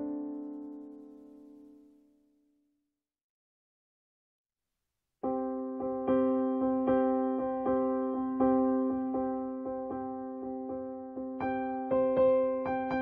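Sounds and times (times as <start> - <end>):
piano music: 0.0 - 1.9, 5.2 - 13.0.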